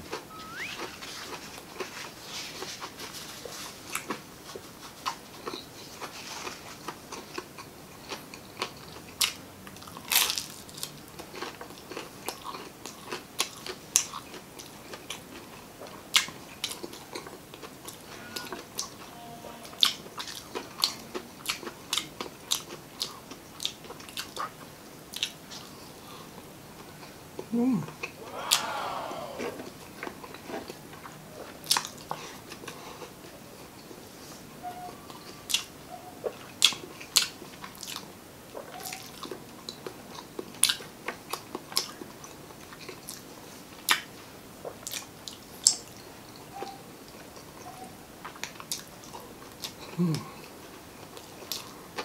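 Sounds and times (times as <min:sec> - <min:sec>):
chewing crispy food: 0:00.0 - 0:52.0.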